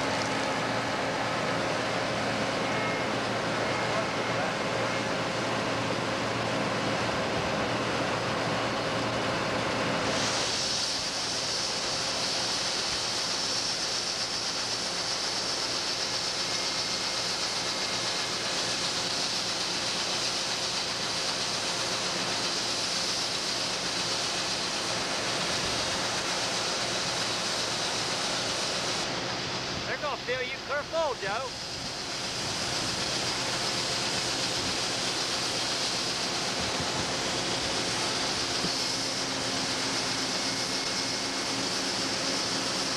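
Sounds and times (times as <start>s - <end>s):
combine harvester running: 0.0s - 42.9s
grain pouring hiss: 9.9s - 42.9s.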